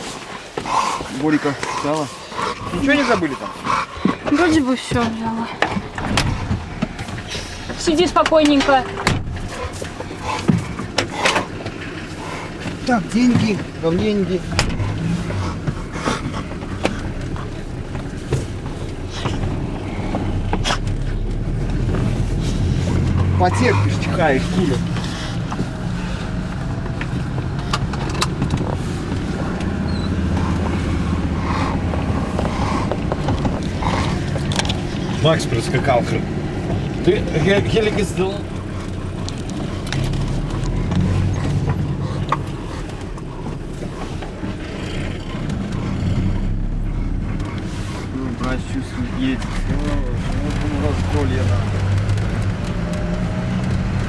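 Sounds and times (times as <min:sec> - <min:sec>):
car engine and road noise: 0:00.0 - 0:54.0
faint clicks and rattles: 0:24.2 - 0:54.0.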